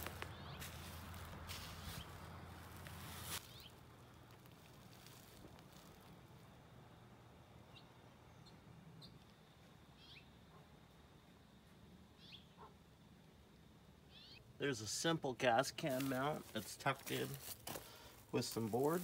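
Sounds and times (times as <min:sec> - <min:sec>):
faint bird chirps: 0:09.9 - 0:10.7, 0:12.2 - 0:12.8, 0:14.1 - 0:14.5.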